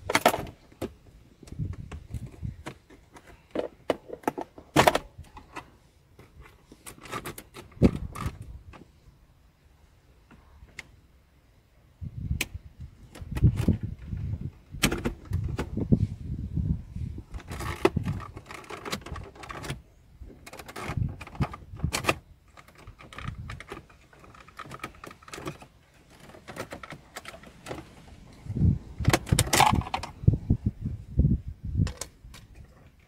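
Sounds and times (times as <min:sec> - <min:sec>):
clicks and rattles of plastic trim: 0:20.4 - 0:27.8.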